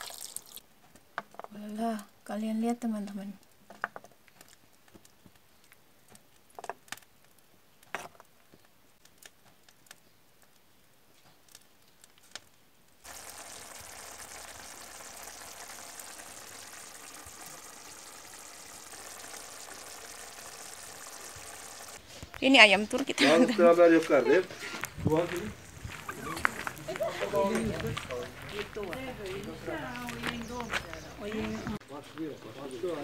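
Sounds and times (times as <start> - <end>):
stew bubbling and sizzling: 0.0 - 0.7, 13.0 - 28.6.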